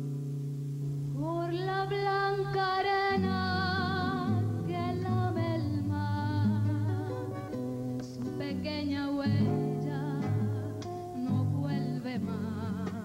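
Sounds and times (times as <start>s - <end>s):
plucked acoustic guitar: 0.0s - 13.0s
woman singing: 1.2s - 13.0s.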